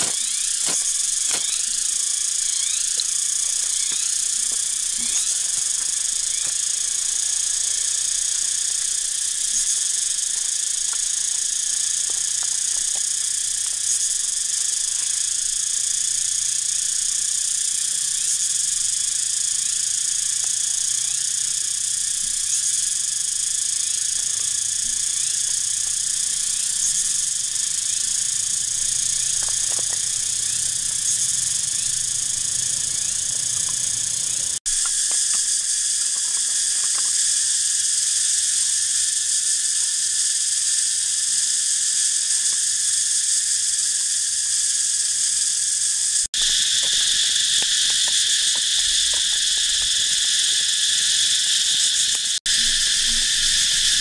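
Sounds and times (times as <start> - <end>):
insect chorus drone: 0.0 - 54.0.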